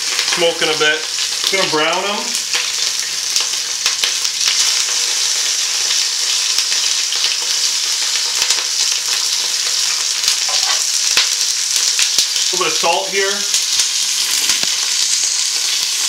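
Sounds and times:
meat sizzling in hot oil: 0.0s - 16.0s
small crackling pops: 2.3s - 15.9s.

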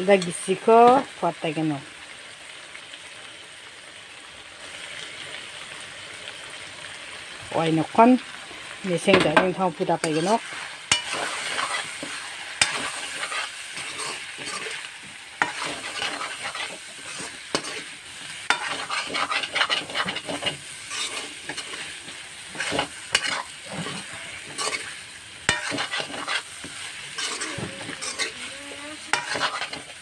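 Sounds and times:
chicken sizzling in a wok: 0.0s - 30.0s
metal ladle scraping a pan: 10.0s - 30.0s.

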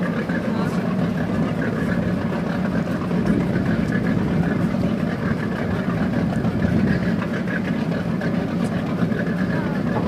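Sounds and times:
boat engine droning: 0.0s - 10.0s.

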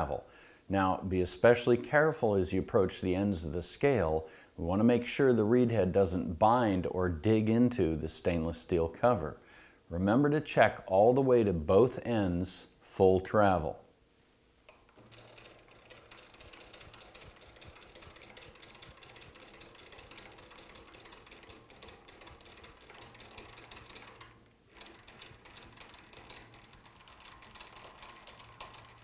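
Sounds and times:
lathe handwheel clicking and rattling: 14.8s - 29.0s.

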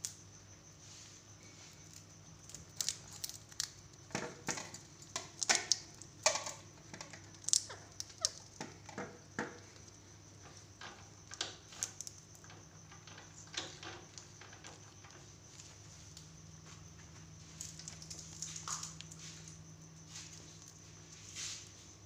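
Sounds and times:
parakeet cracking a peanut: 1.8s - 10.0s.

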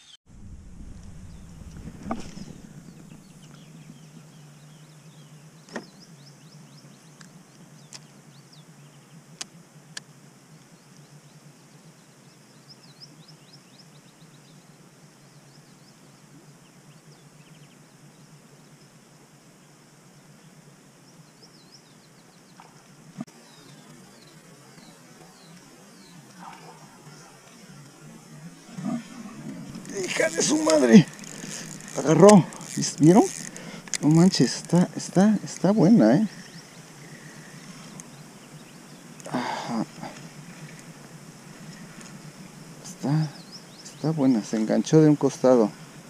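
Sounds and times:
steady low hum: 0.3s - 46.0s
birds chirping faintly: 1.1s - 46.0s
sharp clicks: 29.7s - 34.9s.

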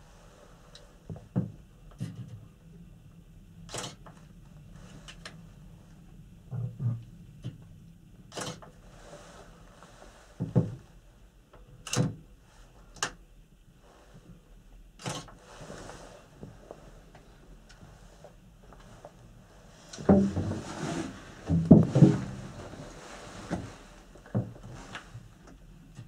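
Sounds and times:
low steady hum: 0.0s - 26.0s
knocks and creaks in cabin: 10.4s - 10.9s, 20.0s - 25.3s.

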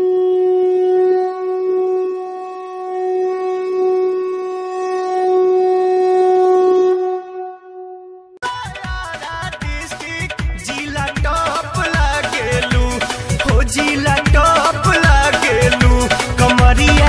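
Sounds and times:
conch shell blown: 0.0s - 8.4s.

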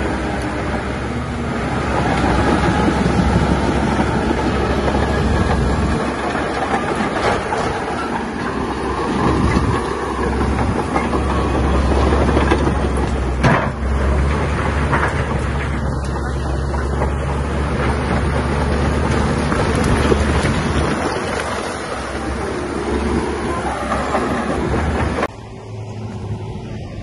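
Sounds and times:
diesel engine hum: 0.0s - 27.0s
rattling clatter: 2.0s - 22.2s.

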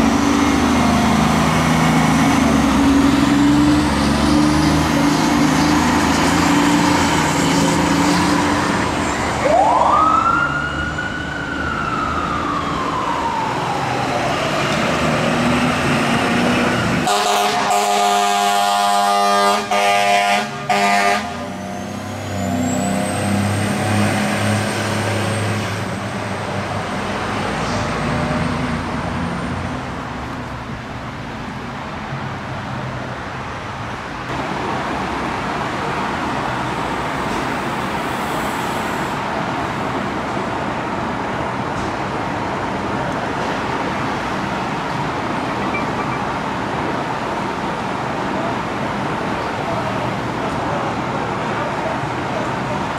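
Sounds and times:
truck engine: 0.0s - 9.8s, 10.4s - 52.9s
traffic noise: 0.0s - 52.9s
fire engine air horn: 17.0s - 21.6s.

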